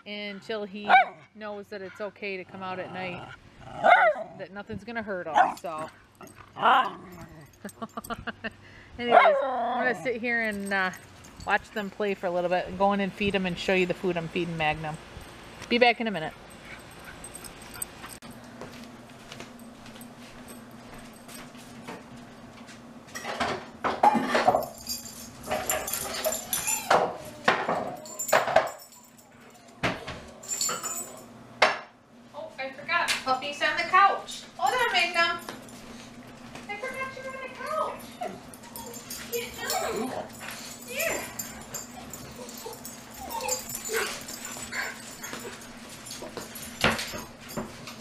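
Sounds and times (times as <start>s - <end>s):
dogs whining and barking: 3.0s - 4.4s, 9.1s - 11.4s, 24.0s - 30.7s, 38.0s - 46.8s
dishes clinking: 23.2s - 29.2s.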